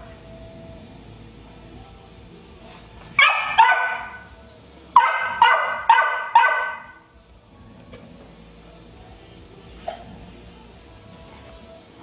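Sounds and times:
puppy barking: 3.2 - 4.2, 5.0 - 7.0.

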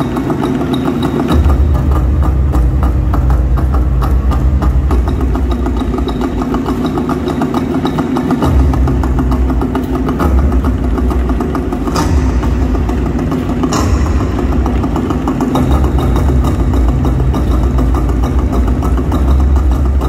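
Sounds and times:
large barrel drums beating: 0.0 - 20.0.

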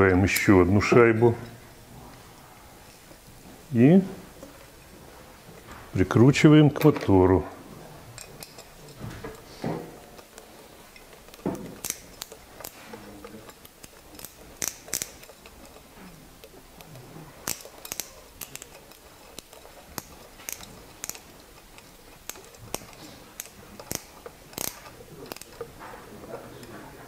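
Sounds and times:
screwdriver metallic clicks: 8.2 - 9.5, 10.1 - 25.8.

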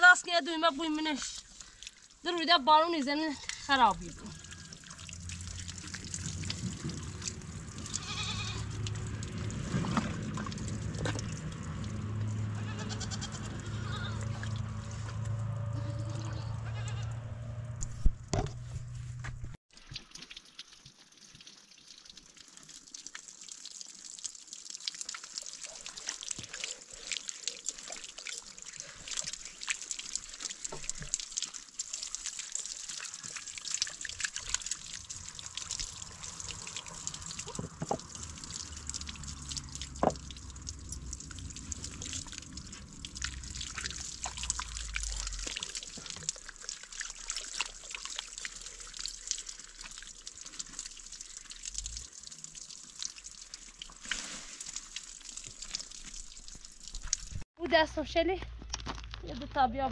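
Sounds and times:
water trickling into a bag: 0.0 - 15.2, 19.7 - 57.4
low rumble: 5.2 - 19.6.

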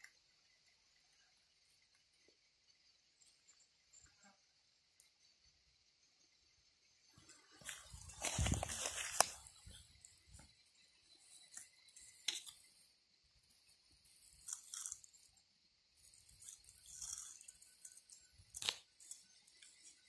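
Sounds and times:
tortoise crunching in grass: 7.6 - 9.8, 14.1 - 15.1.

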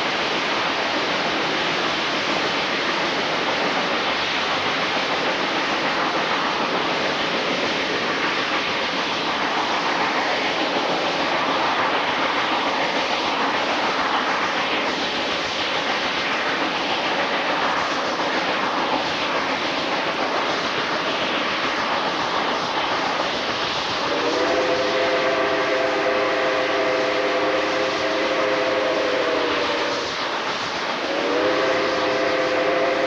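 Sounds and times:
train wheels and wind: 0.0 - 33.0
steam whistle chord: 24.1 - 30.1, 31.1 - 33.0.

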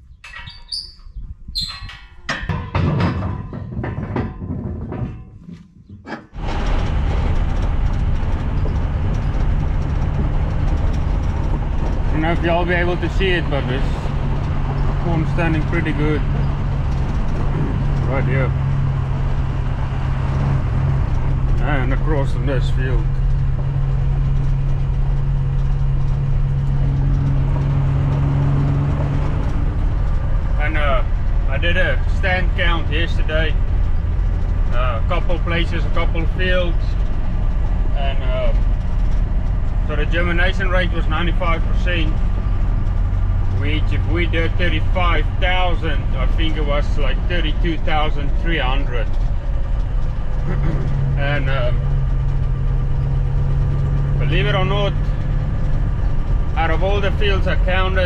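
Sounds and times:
short high squeaks: 0.0 - 2.3
vehicle engine and road noise: 0.0 - 58.0
clicks and knocks: 1.7 - 12.1.

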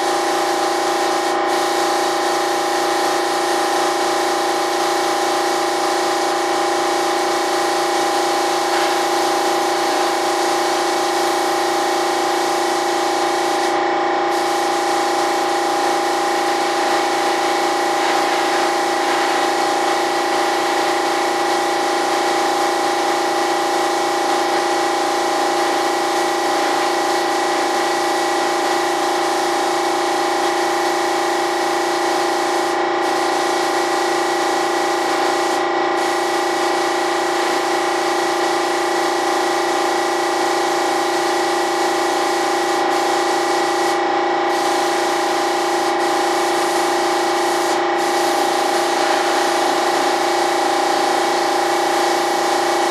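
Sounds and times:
hiss of air and spray: 0.0 - 4.6, 7.7 - 11.5, 12.2 - 23.4
paint sprayer motor hum: 0.0 - 52.9.

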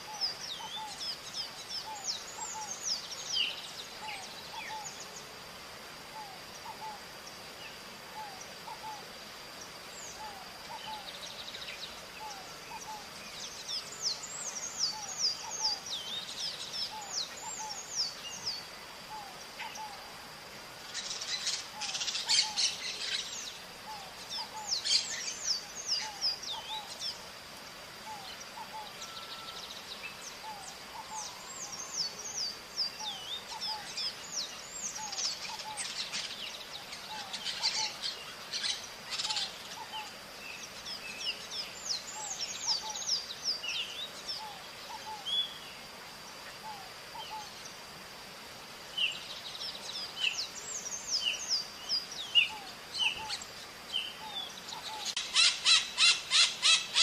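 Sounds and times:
parrots calling: 54.9 - 57.0.

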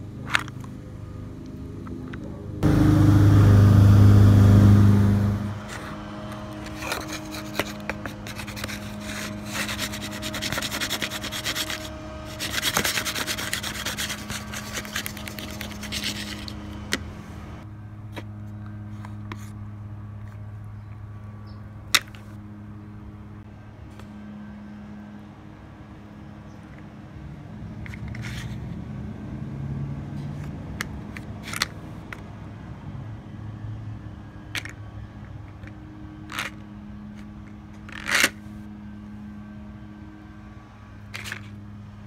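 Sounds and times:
steady low hum: 0.0 - 27.8
loud rubbing noise: 6.6 - 16.9.

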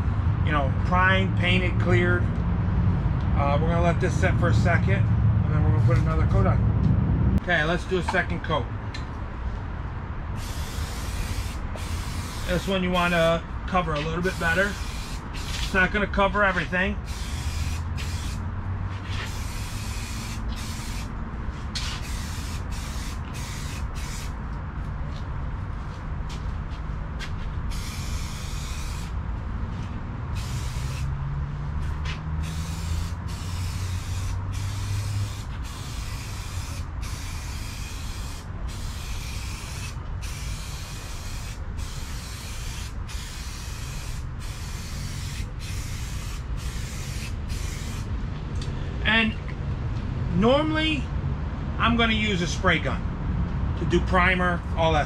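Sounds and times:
aerosol spray can hissing: 10.4 - 12.7, 14.2 - 15.8, 17.0 - 18.4, 19.1 - 21.1, 21.8 - 24.4, 27.7 - 29.1, 30.4 - 31.1, 32.4 - 48.1.

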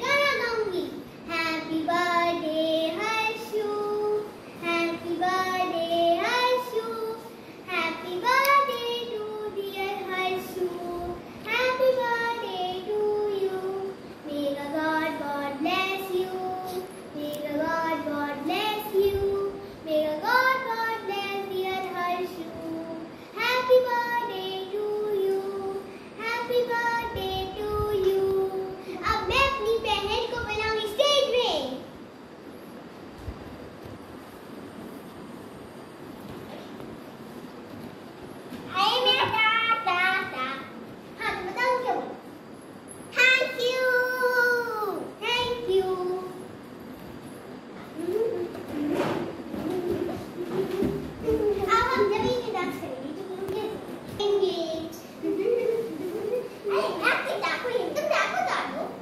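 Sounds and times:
girl singing: 0.0 - 31.9, 43.1 - 46.6, 47.9 - 55.0.

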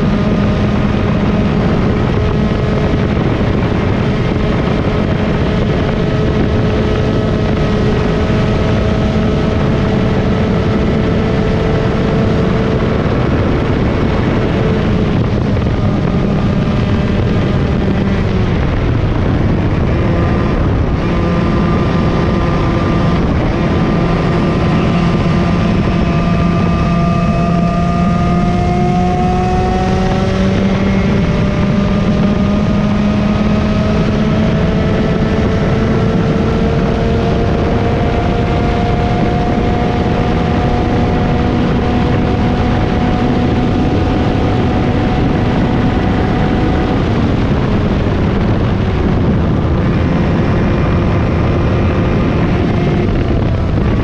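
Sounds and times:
two-stroke kart engine racing: 0.0 - 54.0.

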